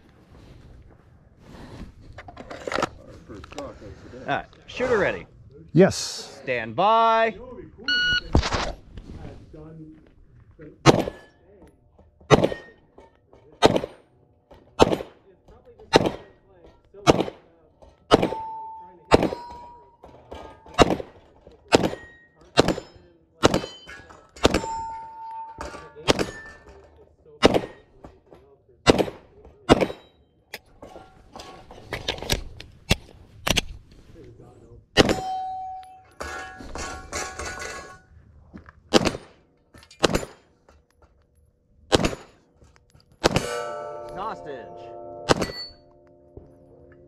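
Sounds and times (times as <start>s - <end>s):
pistol shots: 10.8s - 11.2s, 12.3s - 12.7s, 13.6s - 14.0s, 14.8s - 15.2s, 15.9s - 16.3s, 17.0s - 17.4s, 18.1s - 18.4s, 20.8s - 23.8s, 28.9s - 30.0s, 35.0s - 35.3s, 38.9s - 39.4s, 41.9s - 42.4s, 43.2s - 43.7s, 45.3s - 45.7s
steel targets ringing: 18.2s - 20.6s, 21.8s - 26.6s, 35.0s - 38.0s, 43.3s - 47.0s
steel target ringing: 43.3s - 46.4s.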